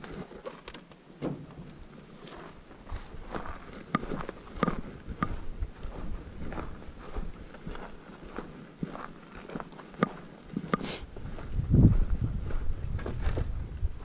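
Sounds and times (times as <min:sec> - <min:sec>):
footsteps on dirt: 0:00.0 - 0:14.0.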